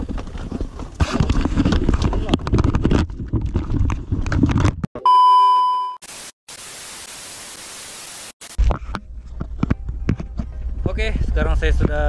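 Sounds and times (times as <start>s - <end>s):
high beep: 5.0s - 6.0s
static hiss: 6.0s - 8.6s.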